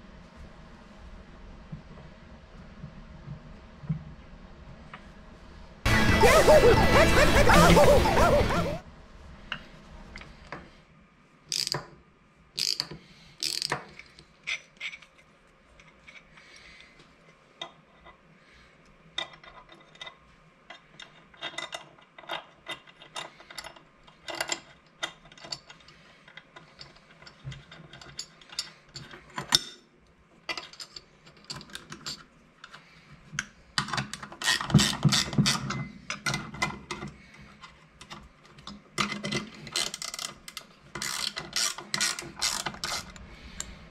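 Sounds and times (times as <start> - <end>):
ratcheting wrench clicking: 11.5 - 11.8, 12.6 - 15.1, 39.7 - 43.7.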